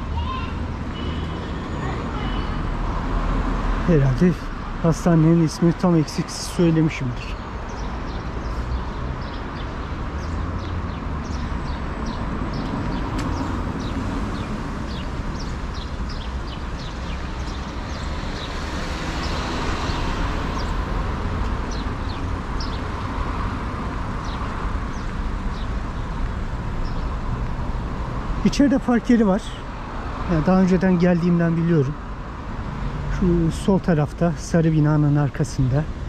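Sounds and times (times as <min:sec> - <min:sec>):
city street traffic: 0:00.0 - 0:36.0
small birds chirping: 0:04.0 - 0:32.4
vehicle passing: 0:07.7 - 0:33.6.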